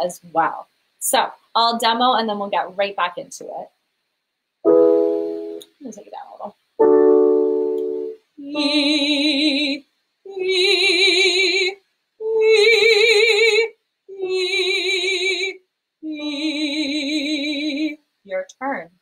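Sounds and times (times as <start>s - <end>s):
keyboard chord: 4.6s - 5.6s, 6.8s - 8.8s
woman singing vocal exercise: 8.4s - 18.0s.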